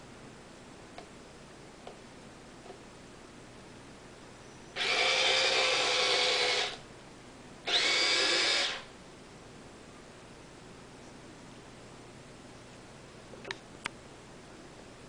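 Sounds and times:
small electric motor whirring: 4.8s - 6.8s, 7.7s - 8.9s.

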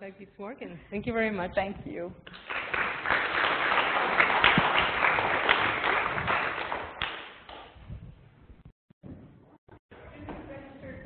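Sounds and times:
audience applauding: 2.3s - 7.7s.

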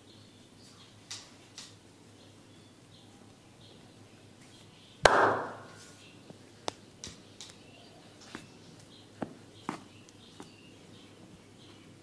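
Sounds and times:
massage gun hit: 5.1s - 5.7s.

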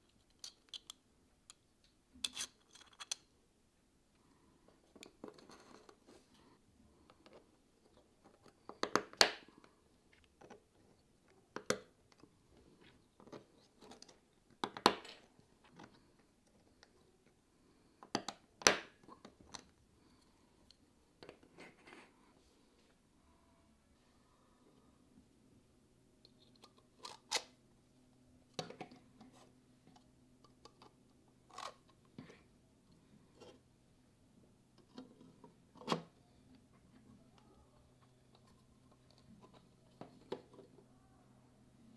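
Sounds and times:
plastic parts clicking: 0.1s - 1.6s.

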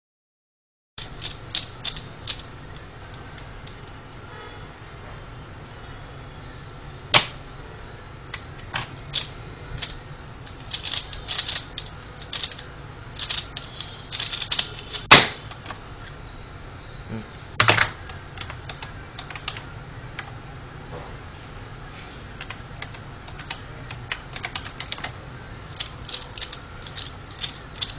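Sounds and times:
quick plastic puzzle clicks: 1.0s - 3.5s, 8.8s - 12.6s, 13.2s - 15.7s, 25.8s - 27.9s.

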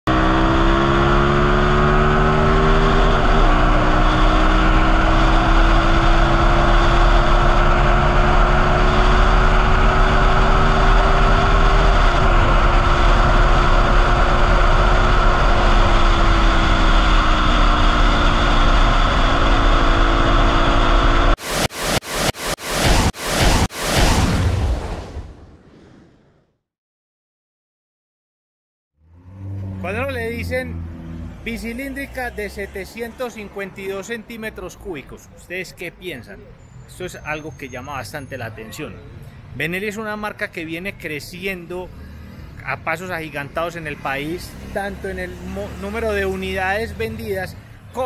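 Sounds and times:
motorcycle engine accelerating: 0.1s - 24.8s, 29.0s - 31.6s, 43.5s - 47.3s.

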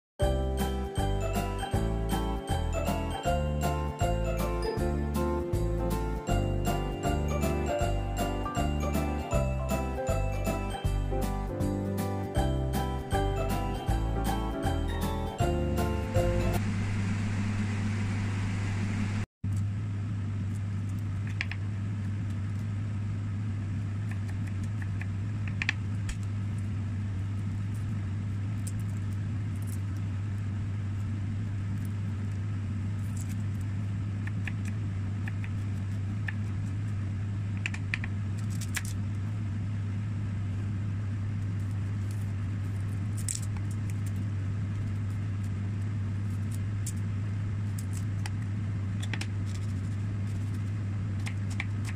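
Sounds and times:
low hum: 0.2s - 51.9s
peeling clicks and rustles: 34.3s - 39.2s, 41.4s - 51.9s.

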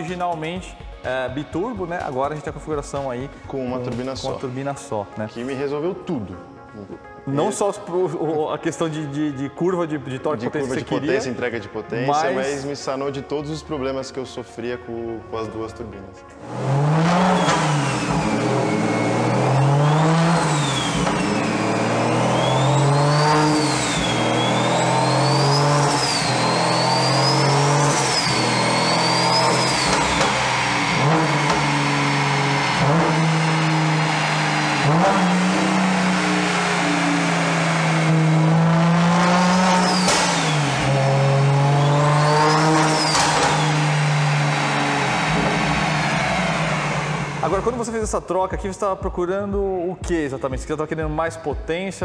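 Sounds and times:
car engine revving: 16.4s - 47.9s
turbo whistle: 17.1s - 38.5s, 39.3s - 47.5s.

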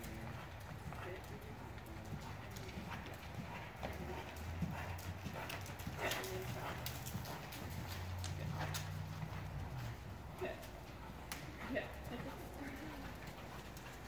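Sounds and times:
horse hoofbeats on soft sand: 0.0s - 14.0s.

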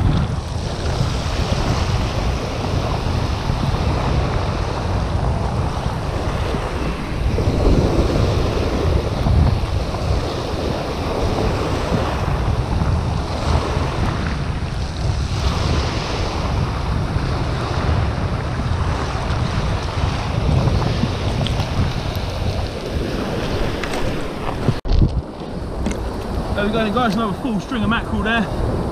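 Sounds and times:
wind buffeting microphone: 0.0s - 28.9s
small waves breaking on shingle: 18.9s - 27.4s.

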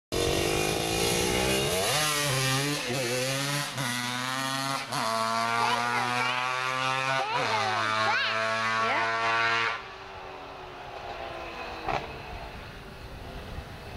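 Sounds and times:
two-stroke quad engine revving: 0.1s - 10.0s.

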